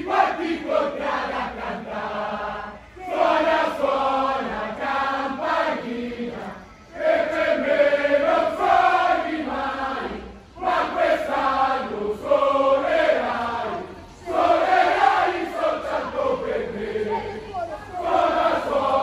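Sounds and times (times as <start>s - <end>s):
crowd singing a chant in unison: 0.0s - 19.0s.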